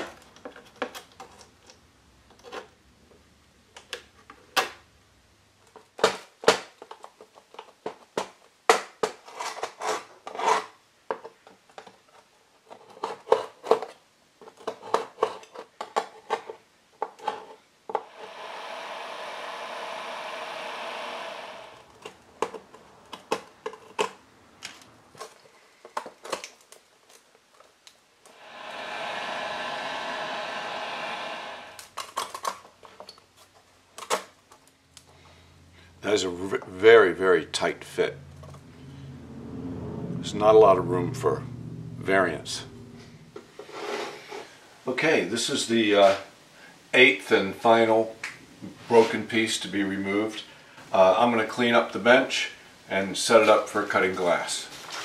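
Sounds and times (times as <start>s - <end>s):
heat gun blowing whir: 18.0s - 22.0s, 28.3s - 32.0s.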